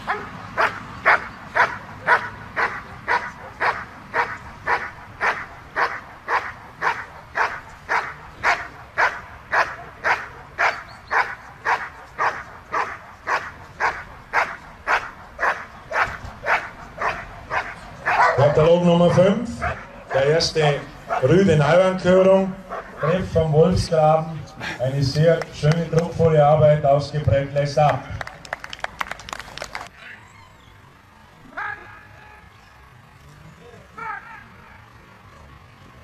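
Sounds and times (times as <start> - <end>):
dog barking: 0.1 - 18.6, 19.6 - 20.2, 21.1 - 21.3.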